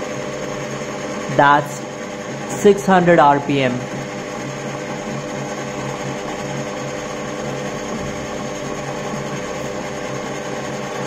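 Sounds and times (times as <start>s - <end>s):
lathe motor humming: 0.0s - 11.0s.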